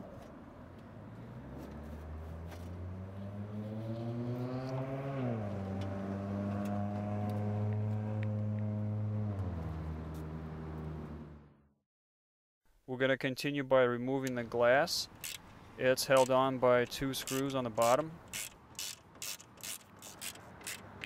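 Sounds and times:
vehicle engine drone: 0:00.2 - 0:11.7.

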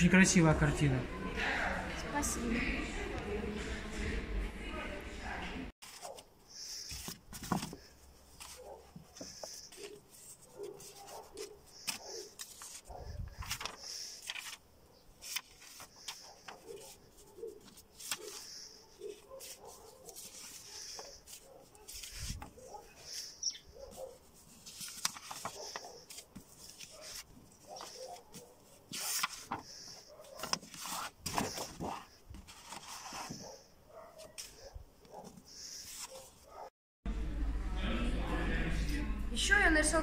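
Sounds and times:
paper sheets rustling: 0:05.8 - 0:36.7.

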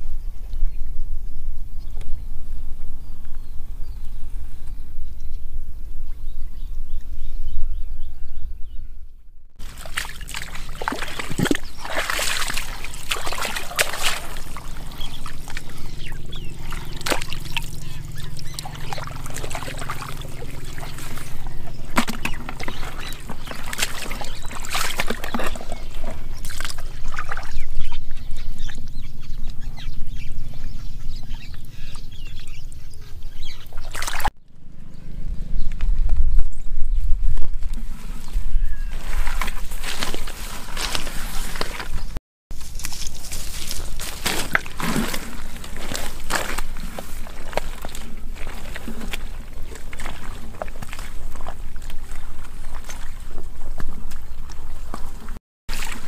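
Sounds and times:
water and mud splashing: 0:09.6 - 0:29.0, 0:33.4 - 0:34.9, 0:37.5 - 0:56.0.

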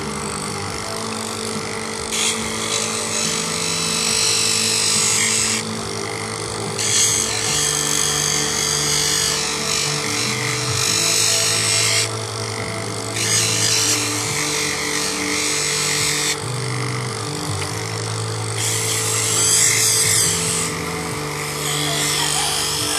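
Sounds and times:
motor hum: 0:00.0 - 0:22.9
stone grinding on wet wheel: 0:00.0 - 0:22.9.

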